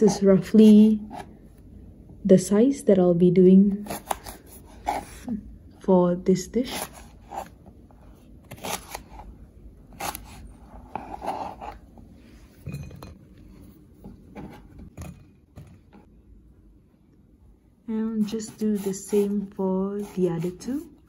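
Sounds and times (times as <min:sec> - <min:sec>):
knife scraping: 0:03.8 - 0:05.3, 0:06.6 - 0:07.6, 0:08.4 - 0:11.9, 0:18.2 - 0:21.0.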